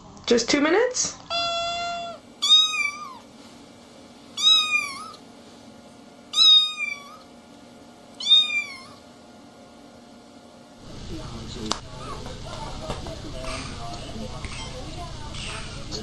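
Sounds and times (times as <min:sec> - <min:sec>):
kitten meowing: 0:01.3 - 0:03.2, 0:04.4 - 0:05.2, 0:06.3 - 0:07.3, 0:08.2 - 0:09.0.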